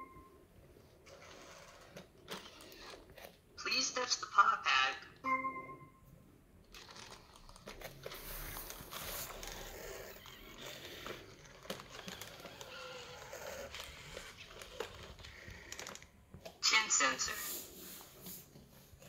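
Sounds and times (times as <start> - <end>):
robot dog servos whirring: 1.0 - 3.3, 8.0 - 16.1.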